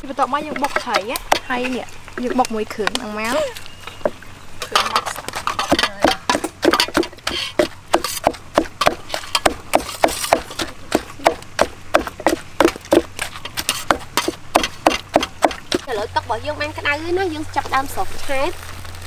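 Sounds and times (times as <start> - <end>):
wooden pestle pounding in mortar: 0.4 - 3.0, 5.0 - 15.9.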